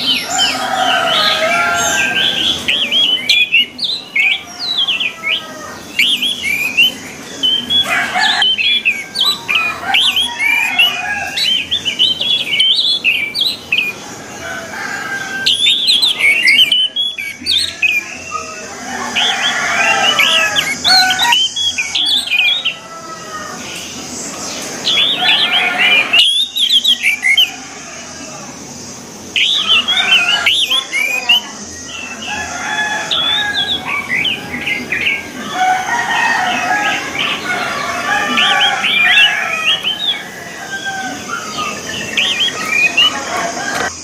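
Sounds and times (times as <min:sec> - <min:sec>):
thrush singing: 0:00.0 - 0:44.0.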